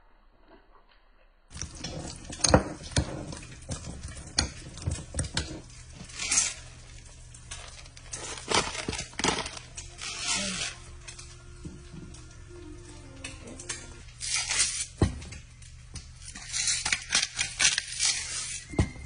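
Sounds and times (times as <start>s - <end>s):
pepper grinder grinding: 13.1s - 18.8s.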